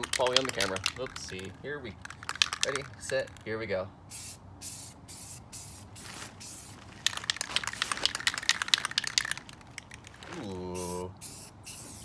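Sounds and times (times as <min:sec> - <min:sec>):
spray can ball rattling: 0:00.0 - 0:12.0
spray can hissing: 0:04.1 - 0:10.0, 0:10.8 - 0:12.0.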